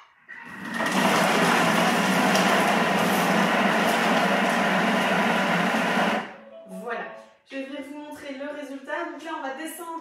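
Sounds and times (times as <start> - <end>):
food processor blades chopping: 0.5 - 6.2.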